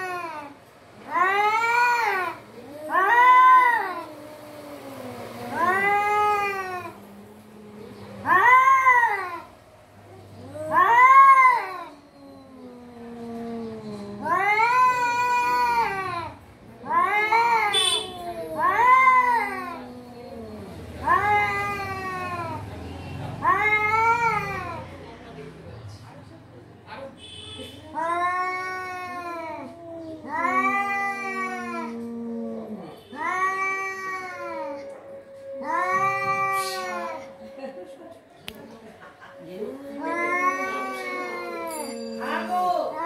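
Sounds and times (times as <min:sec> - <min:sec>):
cats yowling: 0:00.0 - 0:25.0, 0:27.8 - 0:37.8, 0:39.3 - 0:43.0
low falling cat moan: 0:10.4 - 0:22.7, 0:27.9 - 0:37.8, 0:39.5 - 0:43.0
cat low falling moan: 0:28.1 - 0:37.4.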